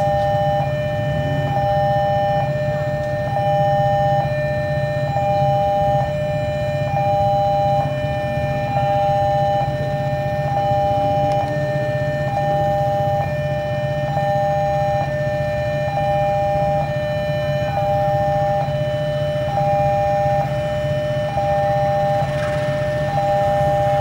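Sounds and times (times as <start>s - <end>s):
diesel locomotive rumble: 0.0s - 14.2s, 19.5s - 24.0s
two-tone crossing alarm chime: 0.0s - 24.0s.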